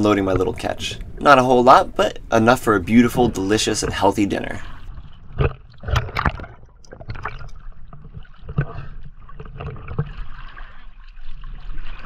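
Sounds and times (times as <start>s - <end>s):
low rumble: 0.0s - 7.8s
water splashing and sloshing: 0.0s - 12.0s.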